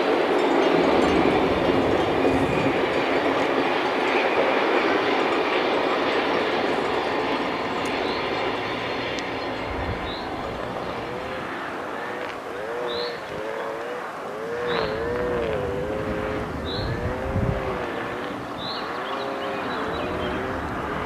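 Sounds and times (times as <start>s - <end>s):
train wheels rushing on rails: 0.0s - 21.0s.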